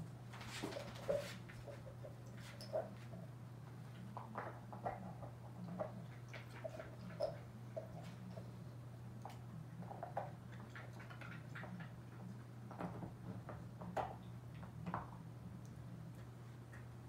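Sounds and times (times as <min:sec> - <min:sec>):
dog gnawing on a chew: 0:09.2 - 0:15.2.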